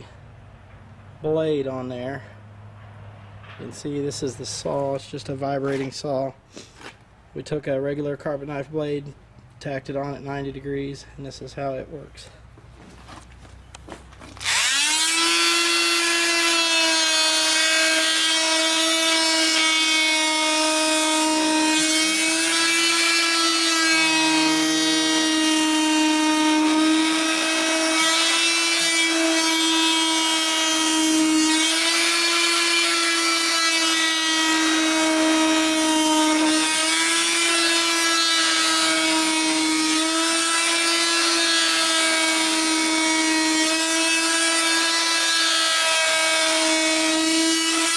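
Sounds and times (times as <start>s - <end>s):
oscillating multi-tool cutting rubber: 14.2s - 47.9s.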